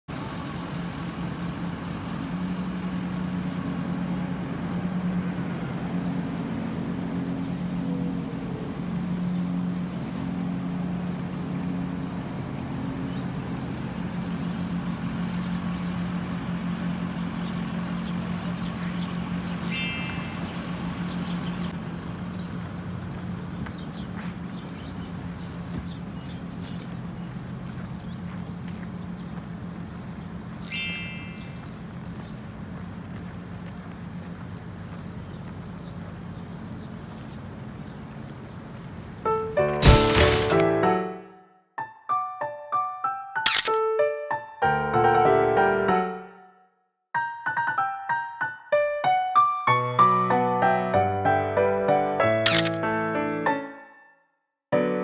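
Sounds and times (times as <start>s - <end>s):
idling engines drone: 0.1s - 40.7s
high bird chirps: 17.4s - 21.8s, 30.6s - 31.8s.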